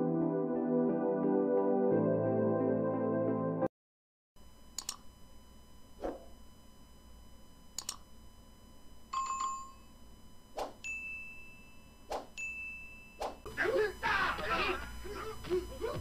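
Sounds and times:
high ringing tone: 0:04.4 - 0:14.1
low steady hum: 0:04.4 - 0:16.0
cursor clicks: 0:04.7 - 0:05.1, 0:07.7 - 0:08.1.

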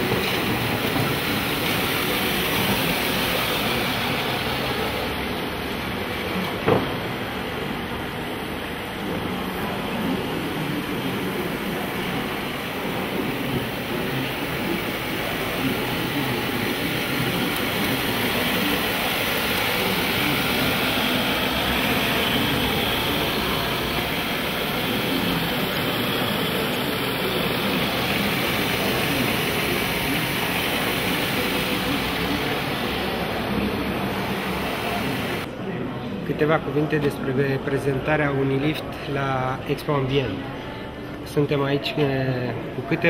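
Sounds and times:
murmuring voices: 0:09.0 - 0:36.2.

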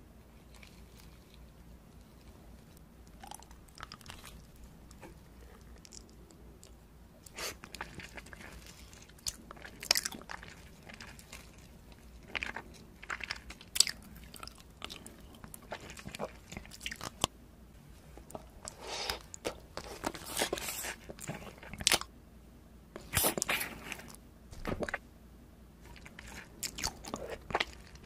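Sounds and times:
crunching hard candy: 0:03.1 - 0:17.3.

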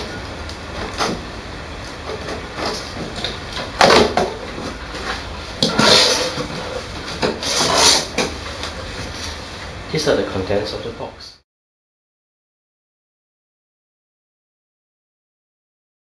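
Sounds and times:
cardboard box scraping and rustling: 0:05.0 - 0:09.4.

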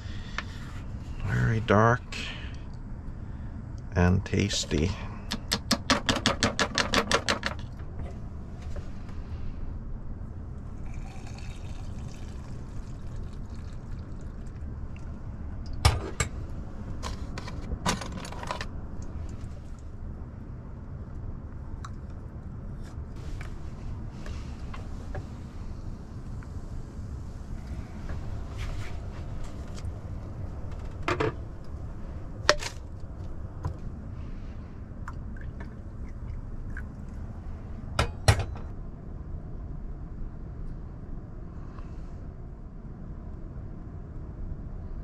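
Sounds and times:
steady low rumble: 0:00.0 - 0:05.5, 0:07.7 - 0:45.0
sharp knocks and clicks: 0:05.3 - 0:08.2.

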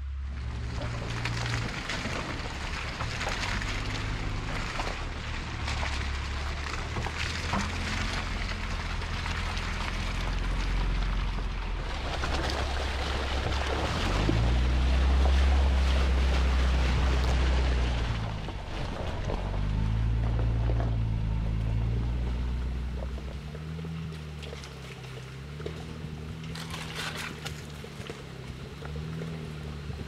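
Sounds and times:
branches crackling against vehicle: 0:00.0 - 0:30.0
low engine hum: 0:00.0 - 0:30.0.

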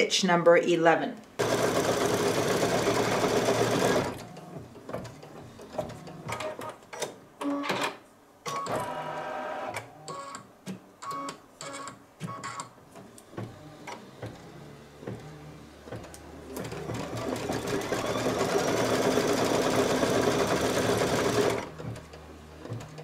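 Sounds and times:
embroidery machine stitching: 0:01.4 - 0:06.8, 0:13.4 - 0:23.0.

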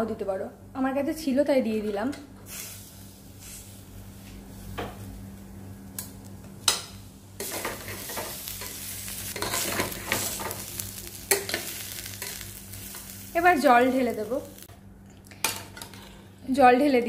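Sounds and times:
faint sizzle: 0:02.4 - 0:14.7
metal spoon stirring and scraping: 0:07.4 - 0:10.6.

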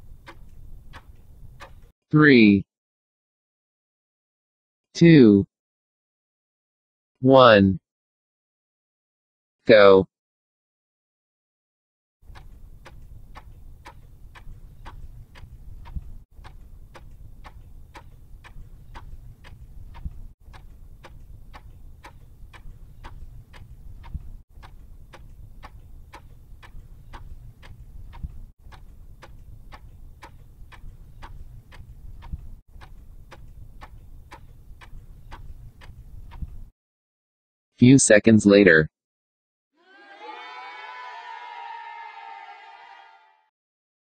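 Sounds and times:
clock ticking: 0:00.0 - 0:01.9, 0:12.3 - 0:36.7.

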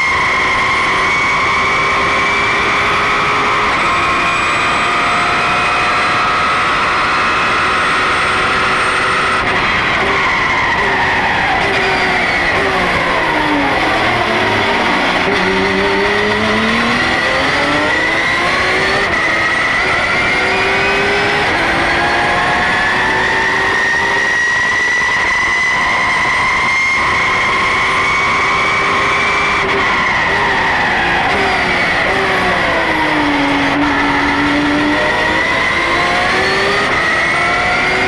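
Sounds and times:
race car engine accelerating: 0:00.0 - 0:38.0.

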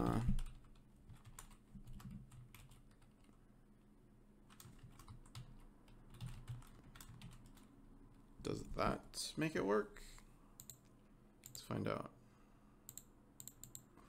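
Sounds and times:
faint keyboard typing: 0:00.0 - 0:03.4, 0:04.4 - 0:07.8, 0:10.6 - 0:11.7, 0:12.9 - 0:14.0.

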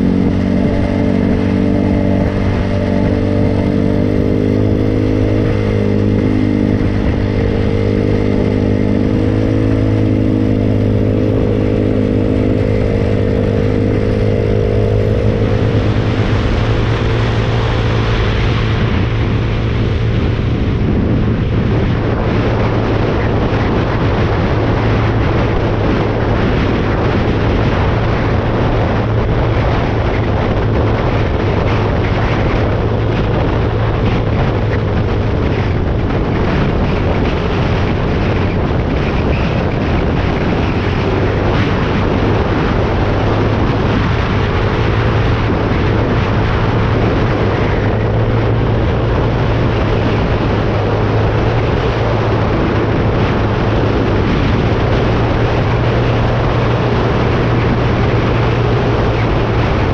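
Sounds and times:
loud rushing noise: 0:00.0 - 0:59.9.

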